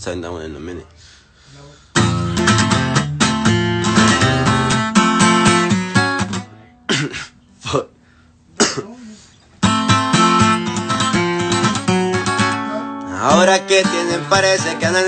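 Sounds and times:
acoustic guitar chords: 1.9s - 7.9s, 9.6s - 15.0s.

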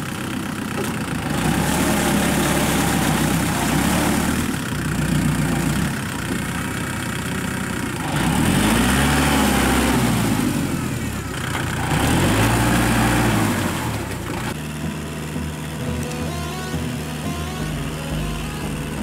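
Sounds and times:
tractor diesel engine under load: 0.0s - 19.0s.

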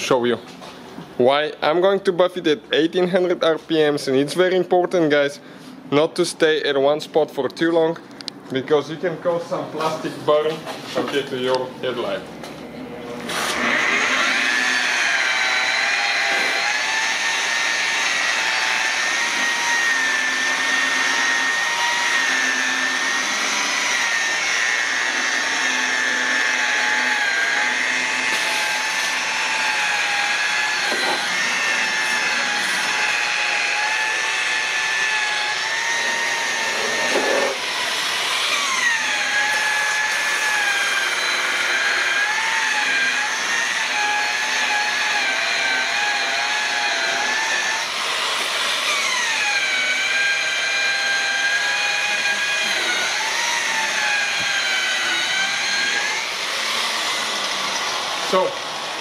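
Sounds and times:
electric polisher motor whine: 13.2s - 59.0s.

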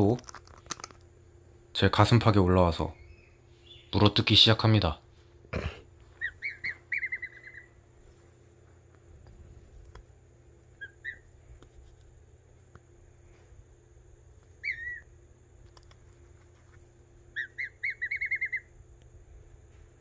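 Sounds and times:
cygnet peeping: 1.7s - 5.0s, 5.7s - 8.0s, 10.6s - 11.4s, 14.6s - 15.4s, 17.2s - 18.8s.

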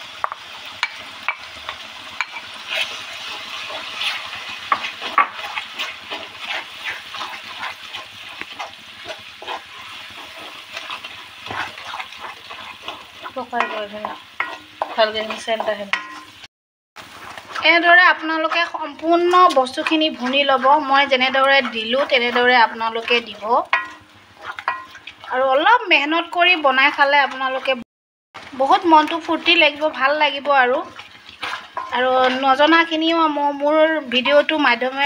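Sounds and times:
masala sizzling in oil: 0.0s - 35.0s
spatula scraping metal pan: 2.2s - 16.4s, 17.1s - 25.2s, 30.6s - 33.0s.

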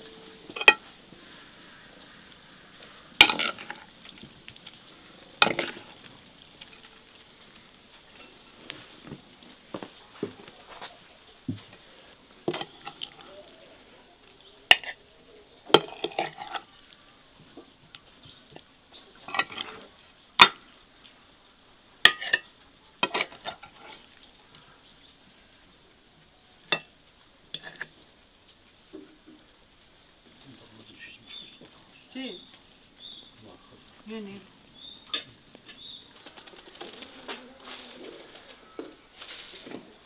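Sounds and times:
cutlery clinking on plates: 0.5s - 0.9s, 12.5s - 13.2s, 15.7s - 16.7s, 19.3s - 19.8s, 22.0s - 24.0s, 26.7s - 26.9s, 35.1s - 35.8s.

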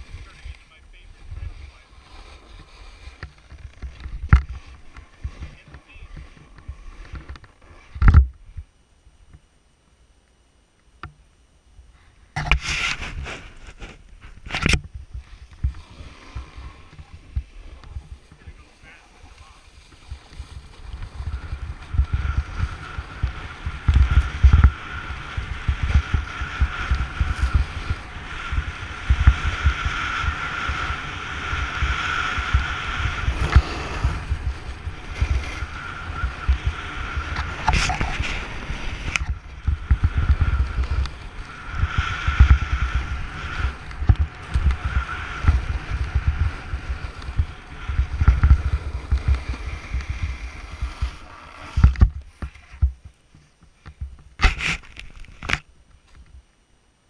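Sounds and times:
snowboard sliding on snow: 0.0s - 8.0s, 12.4s - 53.1s
wind buffeting microphone: 14.6s - 53.0s.

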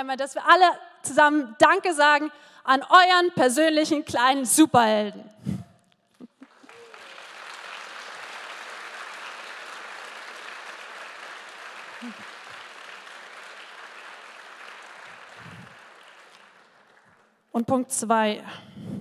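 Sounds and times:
audience applauding: 6.2s - 17.4s.

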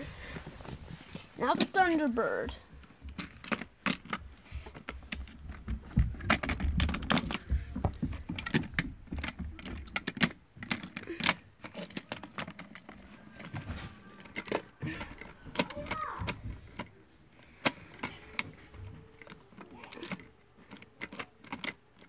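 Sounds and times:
plastic and toy cars clattering: 0.0s - 22.0s.

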